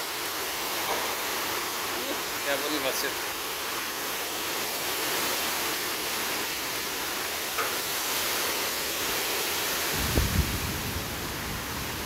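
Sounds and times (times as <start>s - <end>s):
heavy rain pouring: 0.0s - 12.0s
wind buffeting microphone: 9.8s - 12.0s.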